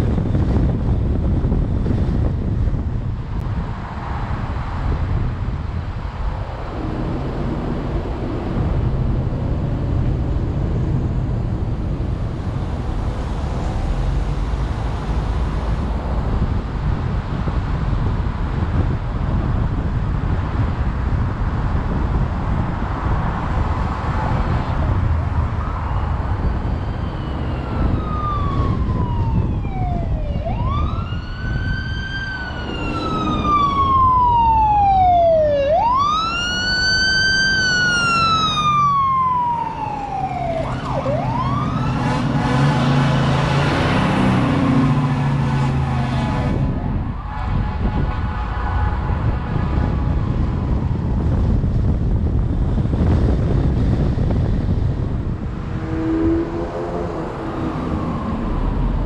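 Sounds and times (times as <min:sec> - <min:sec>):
wind on microphone: 0:00.0 - 0:59.0
emergency siren wailing: 0:24.1 - 0:51.2, 0:55.3 - 0:59.0.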